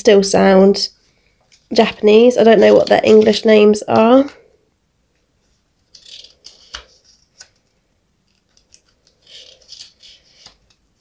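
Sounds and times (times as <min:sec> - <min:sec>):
paper pages rustling: 0:01.5 - 0:03.6, 0:05.4 - 0:11.0.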